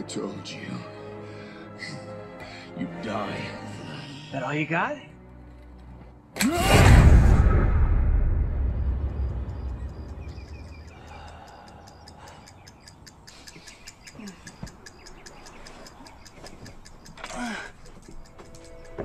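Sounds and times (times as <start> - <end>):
clock ticking: 9.9 - 19.0.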